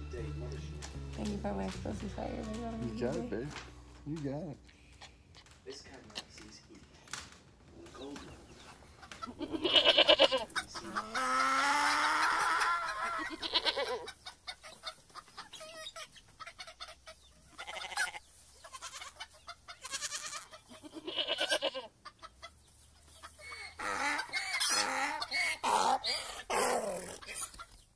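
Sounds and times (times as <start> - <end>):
poultry clucking: 7.8 - 27.9.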